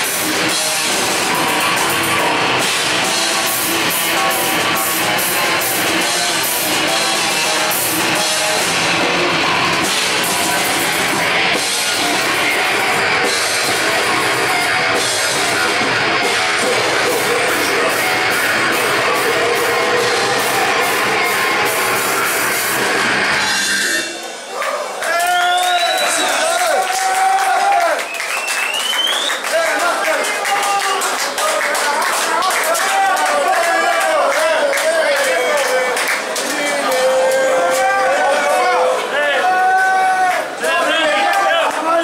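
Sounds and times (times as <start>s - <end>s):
heavy metal band playing live: 0.0s - 25.0s.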